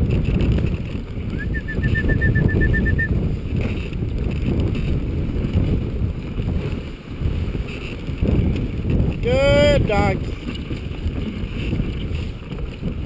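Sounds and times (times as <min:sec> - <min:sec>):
sled gliding over snow: 0:00.0 - 0:13.0
wind buffeting microphone: 0:00.0 - 0:13.0
short high peeps: 0:01.4 - 0:03.1.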